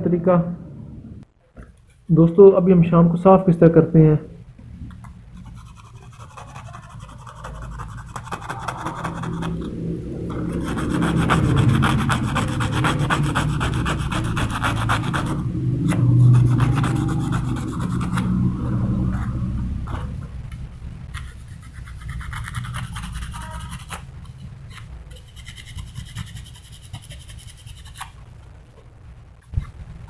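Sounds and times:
sandpaper scratching metal: 5.4 - 9.6, 10.4 - 15.4, 21.1 - 28.2.

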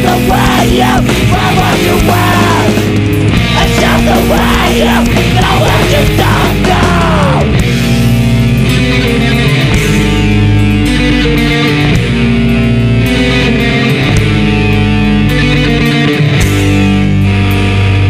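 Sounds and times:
person yelling vocals: 0.0 - 2.8, 3.6 - 7.6
hardcore punk band playing: 0.0 - 18.0.

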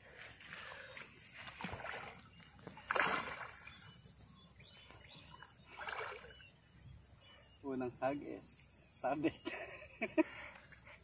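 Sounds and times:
water splashing and sloshing: 0.0 - 6.8.

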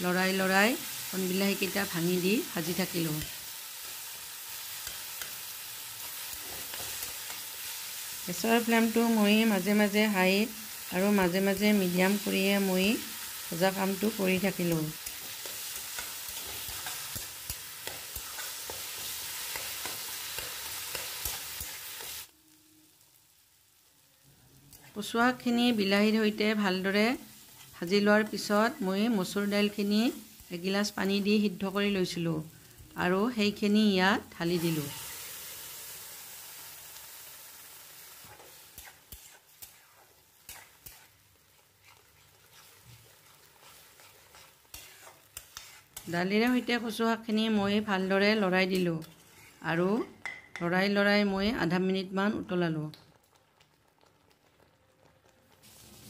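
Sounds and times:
vegetables sizzling in hot oil: 0.0 - 56.0
spatula scraping and knocking pan: 14.6 - 22.2, 41.8 - 46.7
metal spatula scraping a pan: 38.2 - 46.7.

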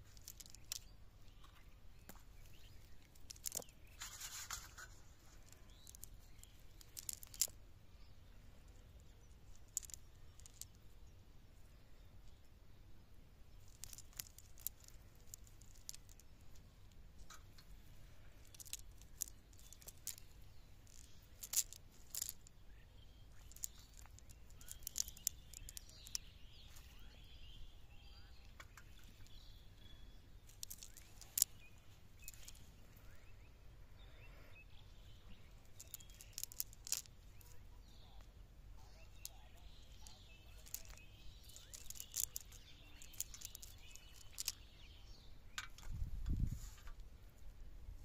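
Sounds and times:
small sharp clicks: 0.0 - 7.6, 13.5 - 33.4, 35.3 - 47.1.

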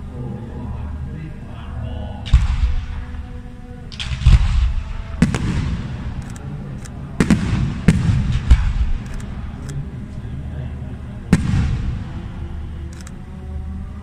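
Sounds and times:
firework bangs with rumbling tails: 2.3 - 3.2, 4.0 - 6.2, 7.2 - 9.0, 11.3 - 12.3.

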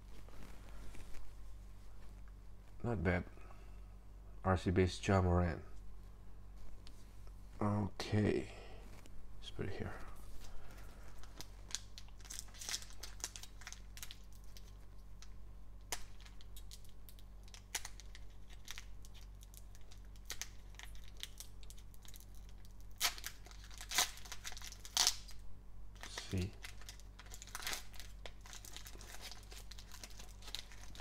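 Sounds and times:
foil wrapper crinkling and tearing: 10.5 - 25.4, 26.0 - 31.0.

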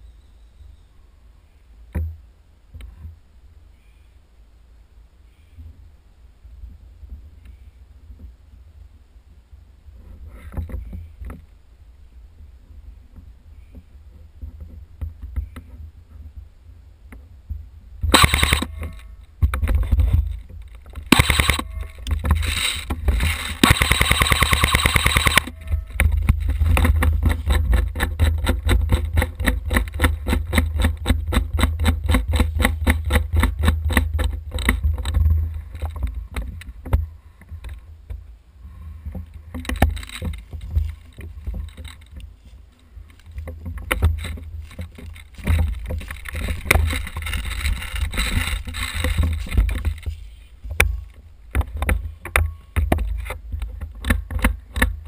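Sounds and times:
airsoft guns firing: 18.1 - 18.9, 21.1 - 25.6
fast rattling clicks: 18.1 - 35.2, 43.1 - 50.1.

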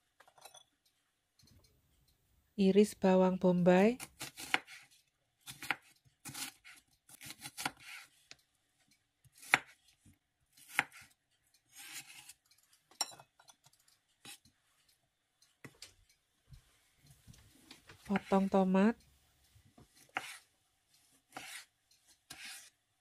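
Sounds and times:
knife slicing onion: 3.9 - 8.4, 9.2 - 12.5, 18.0 - 18.5, 19.8 - 22.8.

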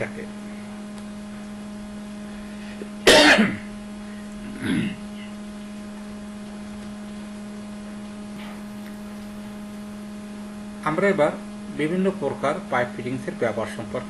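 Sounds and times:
electrical hum: 0.0 - 14.0
man coughing: 3.0 - 3.7, 4.5 - 5.1
throat sound: 4.4 - 5.4.

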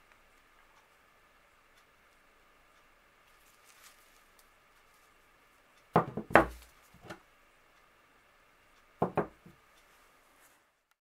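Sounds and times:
iron knocking on wooden boards: 6.0 - 7.2, 9.0 - 9.6.

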